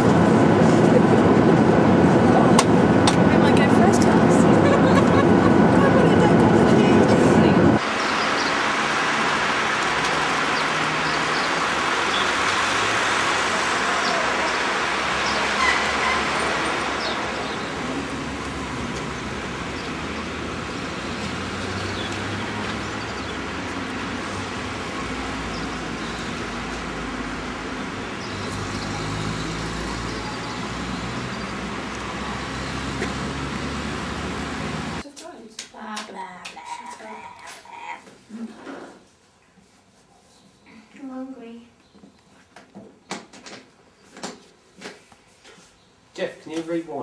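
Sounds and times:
cars driving past: 0:00.0 - 0:35.0.

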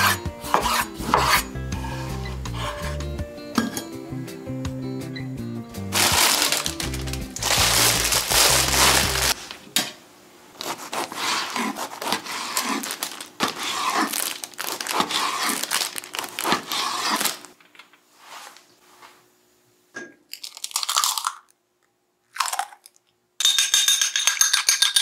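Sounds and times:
knife sawing through bread crust: 0:00.0 - 0:03.0, 0:10.6 - 0:14.2, 0:14.9 - 0:15.7, 0:16.4 - 0:17.4
background music: 0:00.0 - 0:09.4
plastic bag crinkling: 0:05.9 - 0:09.6, 0:10.6 - 0:17.6, 0:20.3 - 0:21.5.

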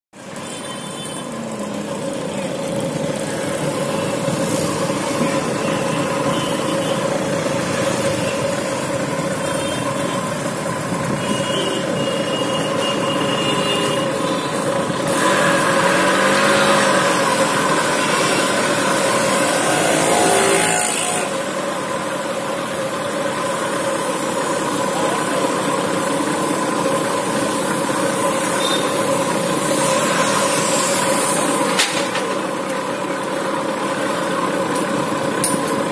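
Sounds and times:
motorbike and car engines: 0:00.2 - 0:35.9
vehicle passing close: 0:15.0 - 0:21.4.

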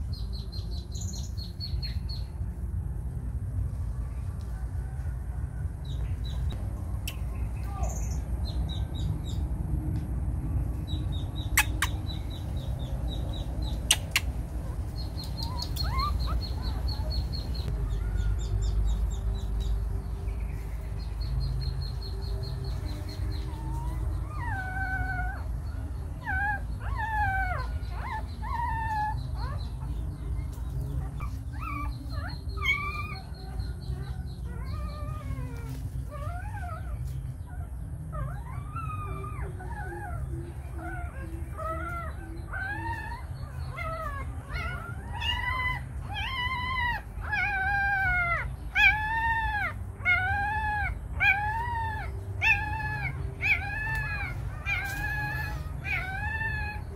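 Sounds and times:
steady low rumble: 0:00.0 - 0:56.9
sharp clicks: 0:13.8 - 0:14.3.

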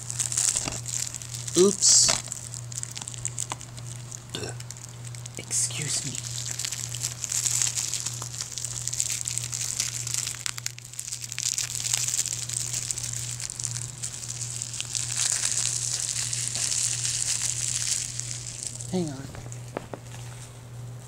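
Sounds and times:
plastic shrink-wrap crinkling and tearing: 0:00.0 - 0:20.5.

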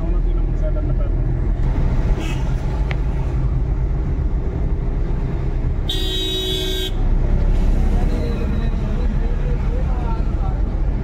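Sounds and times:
car road and engine rumble: 0:00.0 - 0:11.0
vehicle horn: 0:05.9 - 0:07.0.

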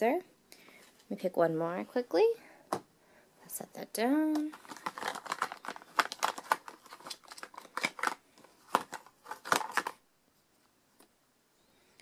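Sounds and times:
plastic cases clicking and clattering: 0:04.3 - 0:10.0.

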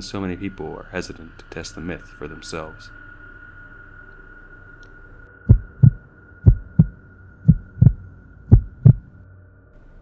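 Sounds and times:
heartbeat thumps: 0:05.4 - 0:09.1.

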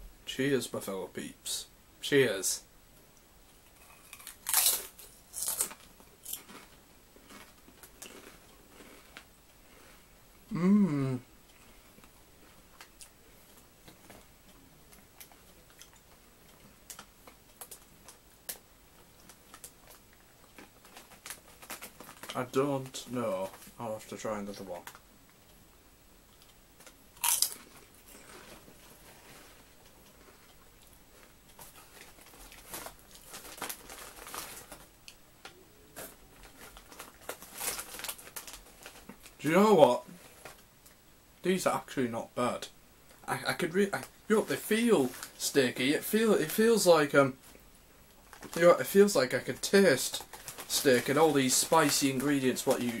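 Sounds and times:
crisps crunching being chewed: 0:03.8 - 0:09.3, 0:26.4 - 0:35.2, 0:36.0 - 0:39.3.

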